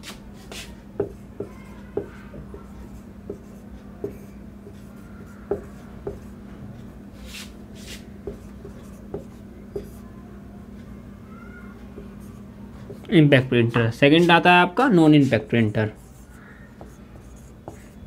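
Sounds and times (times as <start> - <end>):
marker scratching on whiteboard: 0.0 - 6.4, 7.2 - 10.0, 15.2 - 18.0
marker tapping on whiteboard: 1.0 - 6.4, 8.2 - 10.0, 16.0 - 18.0.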